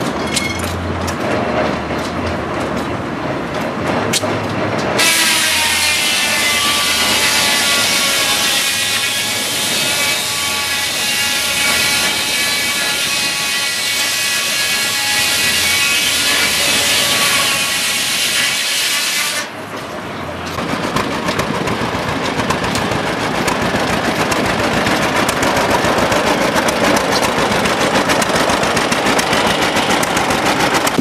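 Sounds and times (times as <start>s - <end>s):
log carriage rumbling and clacking: 0.0s - 5.1s, 19.6s - 31.0s
circular saw blade whine: 5.0s - 19.5s.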